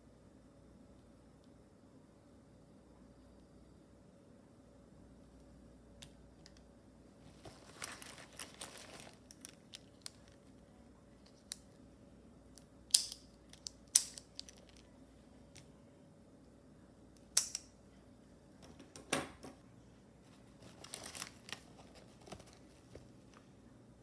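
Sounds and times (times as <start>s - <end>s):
stationery rustling: 7.1s - 11.8s, 19.5s - 23.7s.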